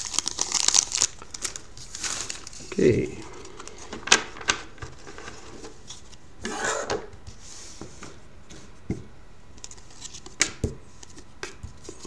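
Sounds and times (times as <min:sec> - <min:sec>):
cards rustling: 0:00.0 - 0:06.2.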